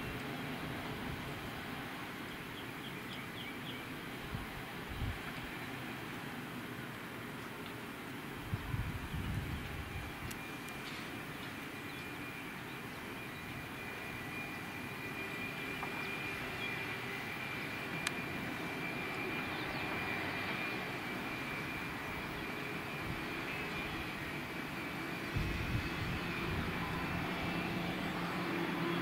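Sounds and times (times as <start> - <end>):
jet engines rumbling: 0.0 - 29.0
thin high whine: 8.5 - 29.0.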